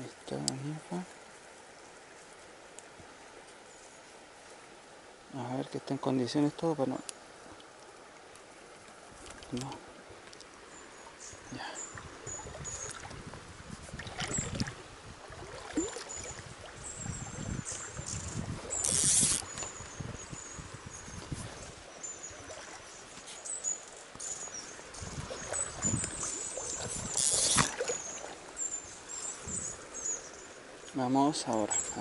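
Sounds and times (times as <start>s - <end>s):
fly line swishing: 17.0s - 20.0s, 21.1s - 28.4s.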